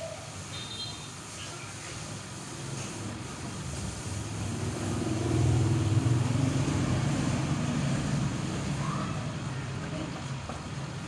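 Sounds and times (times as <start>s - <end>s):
vehicle engine passing by: 3.0s - 10.2s.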